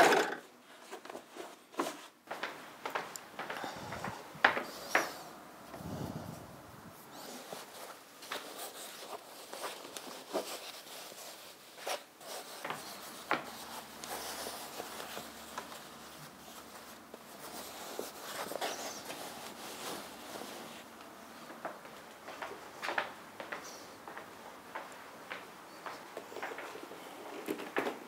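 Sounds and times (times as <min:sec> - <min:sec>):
curtain fabric rustling: 0:00.6 - 0:21.3.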